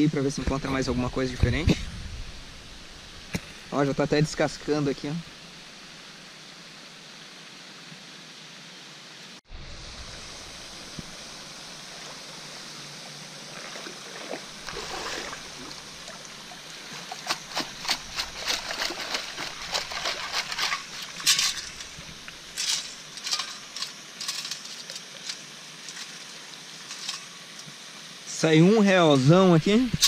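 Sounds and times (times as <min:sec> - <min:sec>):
water sloshing and splashing: 0:11.8 - 0:27.3
sand and pebbles rattling in scoop: 0:16.9 - 0:27.4.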